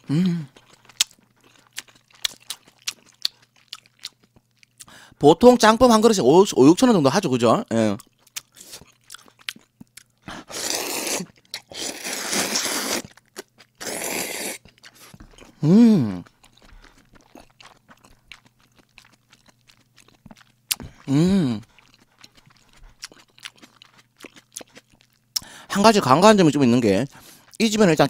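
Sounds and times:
man humming with closed mouth: 0.0s - 0.5s, 15.6s - 16.3s, 21.0s - 21.6s
chewing with wet clicks: 0.5s - 4.9s, 8.0s - 10.3s, 13.0s - 13.8s, 14.6s - 15.6s, 16.2s - 25.5s
man slurping noodles: 10.3s - 13.0s, 13.8s - 14.6s.

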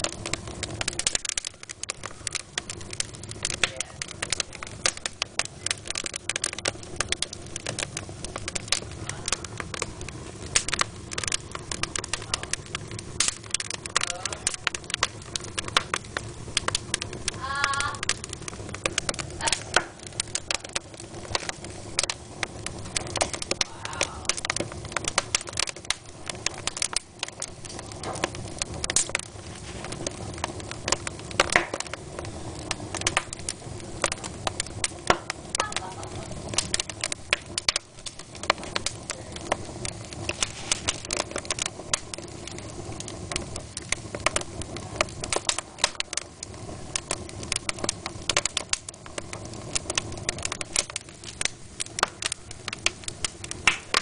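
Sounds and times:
low rush of burning: 0.0s - 54.0s
sharp snaps and pops: 0.0s - 54.0s
wood fire crackling: 0.0s - 54.0s.

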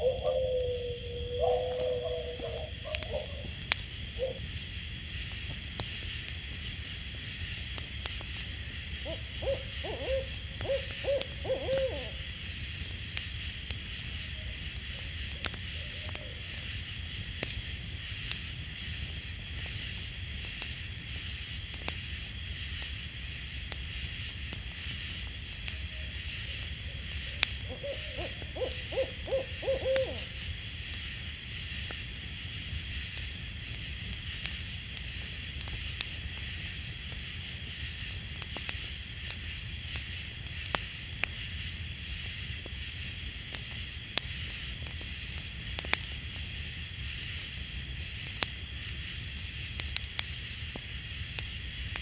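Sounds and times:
owl hooting: 0.0s - 3.5s, 4.2s - 4.4s, 9.0s - 12.3s, 15.8s - 16.4s, 27.6s - 30.4s.

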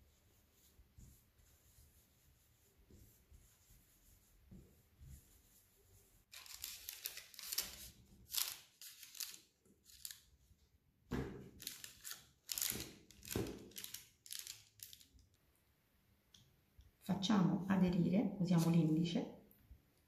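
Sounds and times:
parchment paper crinkling: 6.3s - 10.5s, 11.5s - 15.2s.

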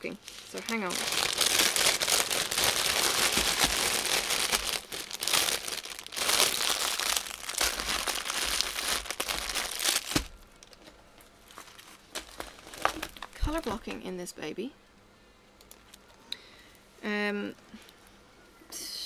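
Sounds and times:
plastic bag crinkling: 0.0s - 13.9s.

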